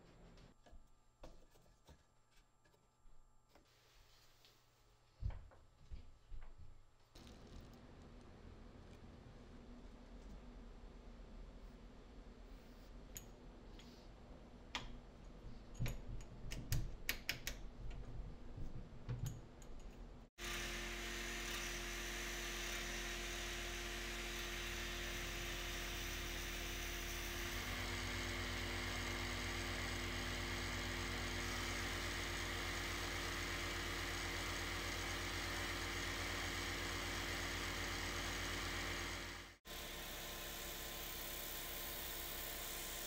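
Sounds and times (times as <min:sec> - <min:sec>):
dust extractor running: 0:20.4 - 0:43.0
wood lathe running: 0:20.4 - 0:43.0.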